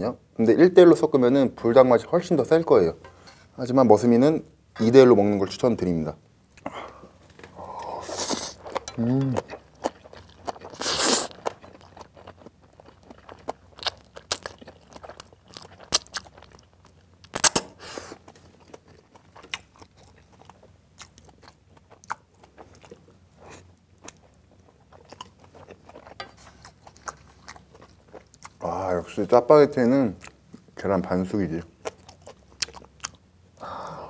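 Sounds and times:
wet chewing: 6.6 - 28.7, 31.7 - 33.3
man slurping noodles: 7.9 - 8.6, 10.7 - 11.3.

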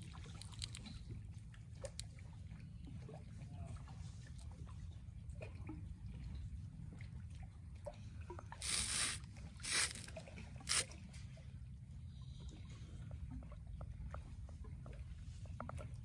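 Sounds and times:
river waves lapping: 8.5 - 11.3
water splashing rushes: 8.6 - 11.0.

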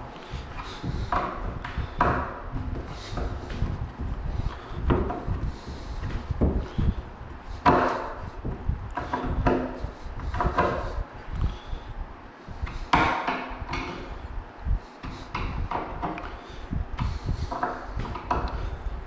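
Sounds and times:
panels bumping: 0.0 - 11.0.

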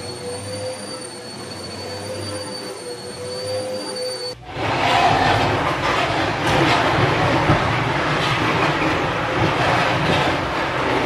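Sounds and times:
heavy unit scraping across floor: 4.4 - 11.0.

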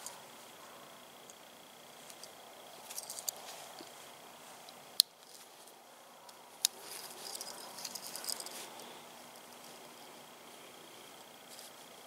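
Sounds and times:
multi-tool metallic clicking and rattling: 2.0 - 3.9, 6.3 - 8.6.

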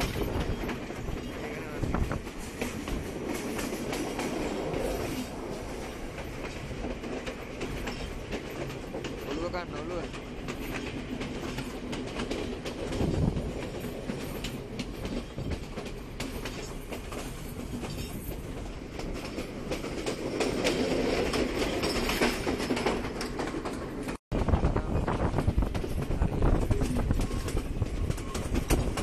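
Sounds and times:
wheels clacking over rail joints: 0.0 - 24.2, 25.2 - 29.0
train carriage rumble: 0.0 - 29.0.

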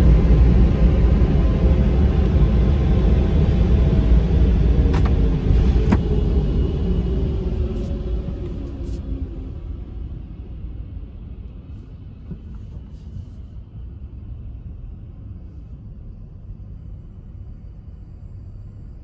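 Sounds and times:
car rumbling inside cabin: 0.0 - 19.0.

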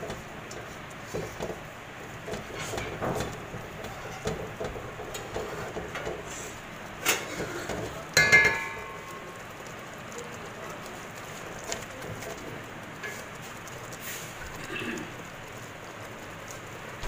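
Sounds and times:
spatula stirring in a pot: 0.0 - 17.0
clank on steel pot: 2.2 - 6.2, 7.0 - 9.4.

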